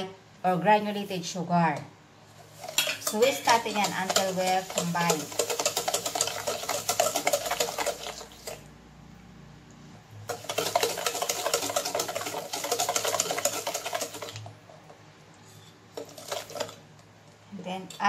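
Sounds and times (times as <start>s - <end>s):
wire whisk rattling in metal bowl: 2.6s - 8.6s, 10.3s - 14.5s, 16.0s - 16.8s.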